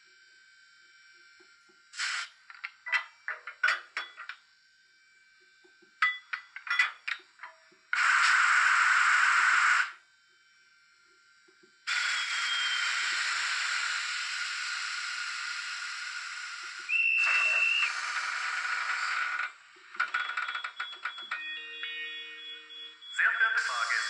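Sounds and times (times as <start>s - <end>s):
steady high tone: 21.1s - 24.0s.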